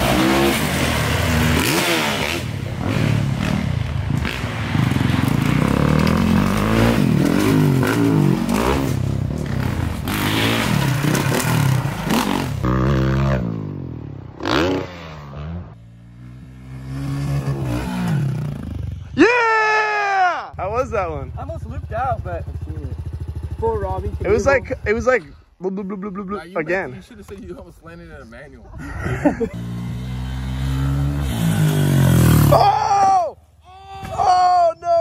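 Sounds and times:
dirt bike engine revving: 0.0 - 19.1, 29.1 - 32.7.

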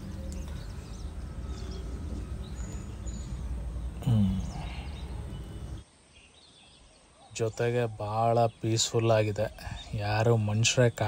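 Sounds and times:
faint bird chirps: 0.0 - 11.0.

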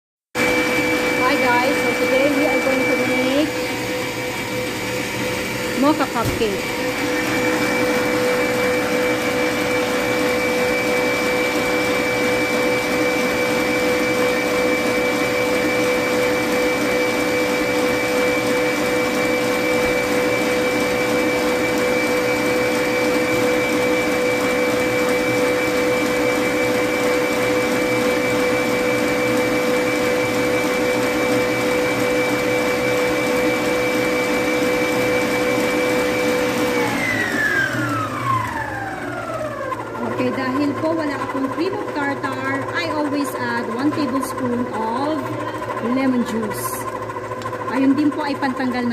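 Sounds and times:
stand mixer whining: 0.4 - 48.9.

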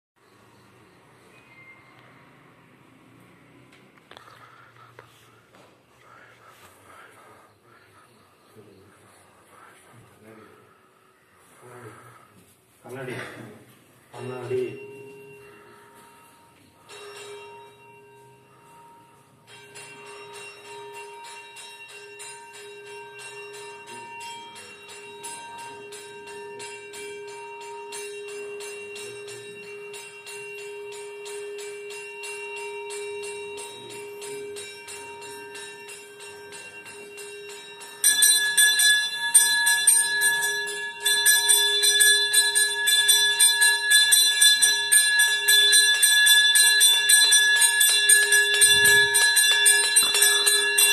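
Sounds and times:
bells ringing rapidly: 14.0 - 50.9.

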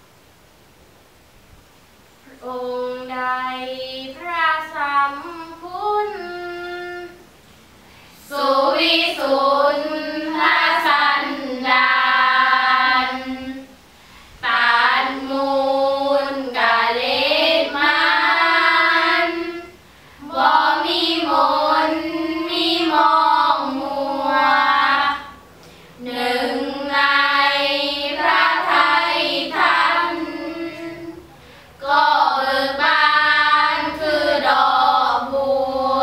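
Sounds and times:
girls chanting in unison: 8.2 - 13.7, 14.4 - 36.0.

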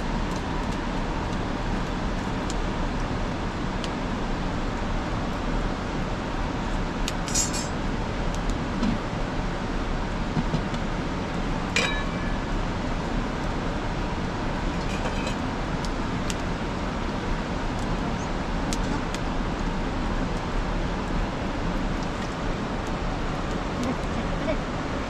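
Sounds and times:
metal cookware clinking: 7.3 - 7.7, 11.8 - 12.4.

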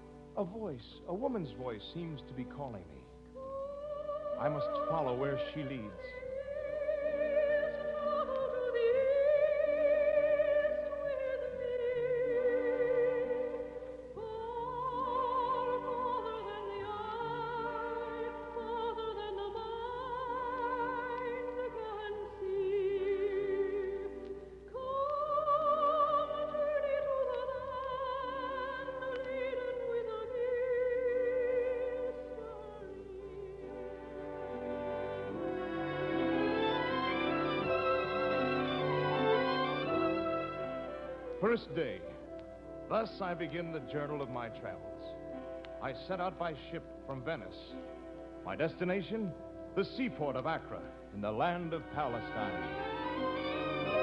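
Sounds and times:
soprano singing with vibrato: 3.3 - 48.7, 51.7 - 54.0
orchestral chords: 33.4 - 54.0.

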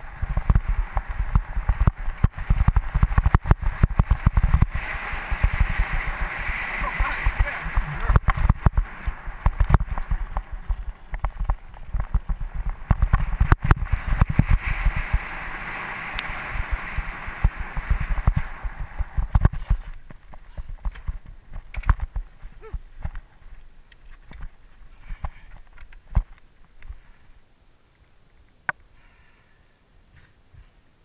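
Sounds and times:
tyres and wind rushing: 0.0 - 27.8
bike knocks and rattles: 0.2 - 5.8, 7.8 - 15.1, 16.8 - 23.3.

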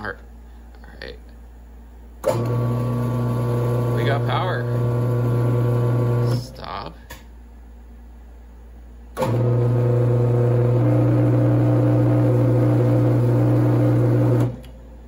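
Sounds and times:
milling machine motor humming: 2.2 - 6.8, 9.2 - 14.8.

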